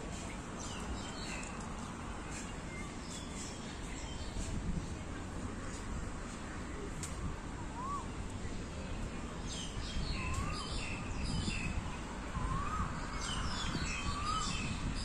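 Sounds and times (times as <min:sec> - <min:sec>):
bird whistling rising and falling: 0:07.8 - 0:08.1.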